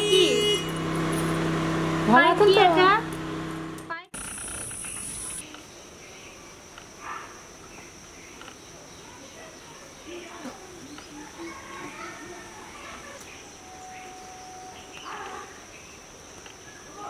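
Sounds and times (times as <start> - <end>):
high buzzing: 0.0 - 5.4
high-pitched insect trill: 4.2 - 5.5, 11.1 - 17.0
faint chirps: 7.6 - 17.0.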